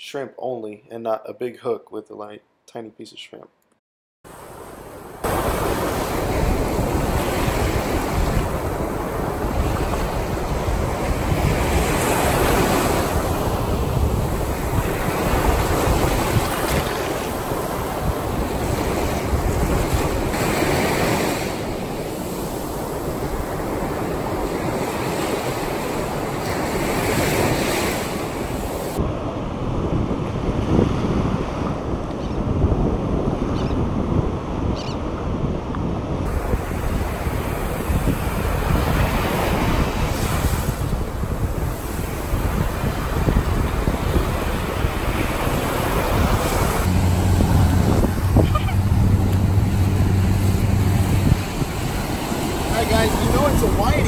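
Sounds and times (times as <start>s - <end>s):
surf breaking on sand: 4.4s - 29.3s, 36.2s - 54.0s
wind buffeting microphone: 5.2s - 27.6s, 28.3s - 54.0s.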